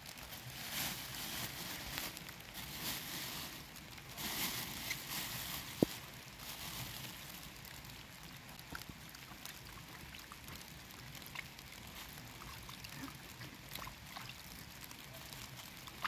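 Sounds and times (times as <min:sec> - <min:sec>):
plastic bag crinkling: 0:00.0 - 0:08.1, 0:10.4 - 0:16.0
water splashing in plastic bowl: 0:07.0 - 0:16.0.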